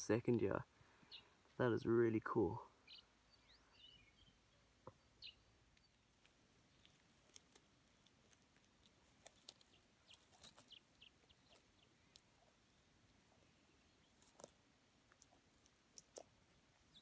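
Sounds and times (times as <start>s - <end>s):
tortoise biting leaves: 5.6s - 17.0s.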